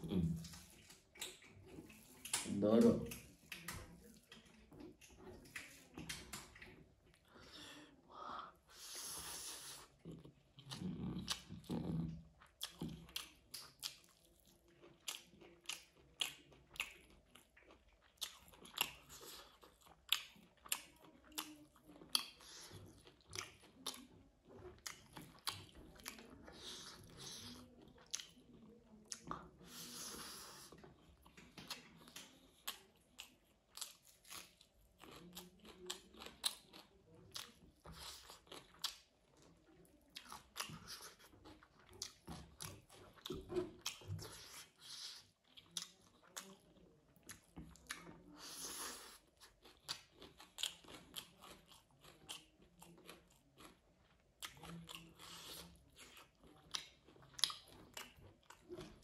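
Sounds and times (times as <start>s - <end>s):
person chewing with wet smacks: 0.0s - 59.0s.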